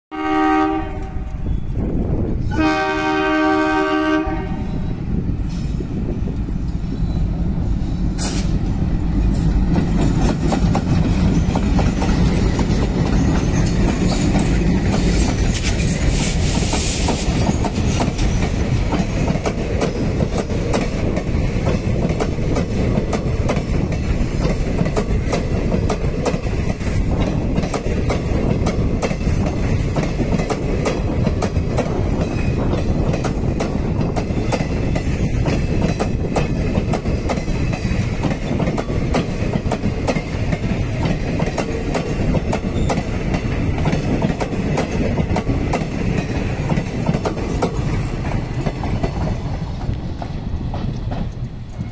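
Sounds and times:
locomotive horn blasts: 0:00.1 - 0:01.6, 0:02.5 - 0:04.8
train rumbling past: 0:00.1 - 0:51.9
wheels clacking over rail joints: 0:08.1 - 0:51.9.

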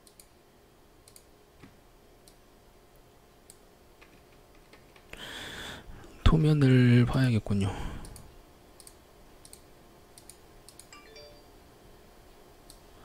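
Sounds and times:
keyboard and mouse clicks: 0:00.0 - 0:00.3, 0:01.0 - 0:01.3, 0:08.8 - 0:09.6, 0:10.2 - 0:10.9.

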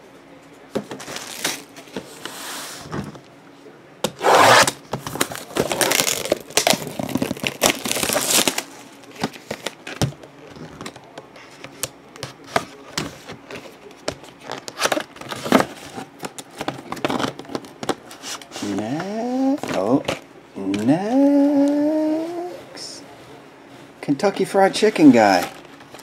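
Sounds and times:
cardboard and plastic crinkling: 0:00.8 - 0:02.1, 0:04.9 - 0:11.1, 0:12.3 - 0:19.0, 0:24.8 - 0:26.0.

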